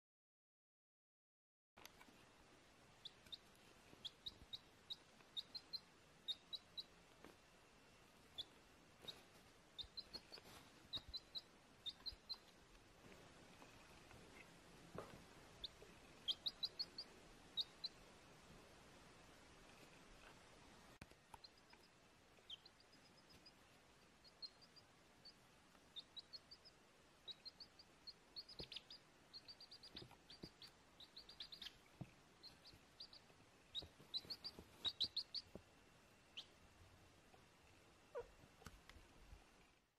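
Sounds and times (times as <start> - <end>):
chick peeping: 3.0 - 7.4, 8.2 - 12.6, 13.5 - 18.2, 21.0 - 36.7, 38.0 - 38.8.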